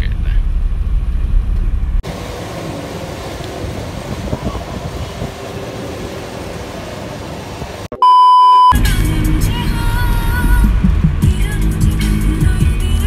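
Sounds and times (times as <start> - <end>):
car road noise: 0.0 - 8.0, 8.8 - 13.0
fuel pump rumbling: 0.5 - 7.9
electronic beep: 7.9 - 8.8
background music: 8.8 - 13.0.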